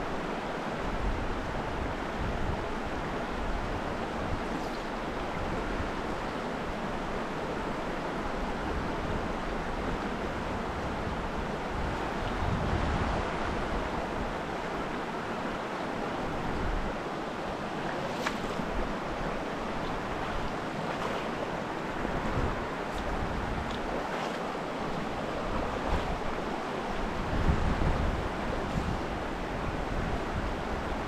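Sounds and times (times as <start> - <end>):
stream flowing: 0.0 - 31.0
wind rumbling on microphone: 8.5 - 15.0, 17.6 - 31.0.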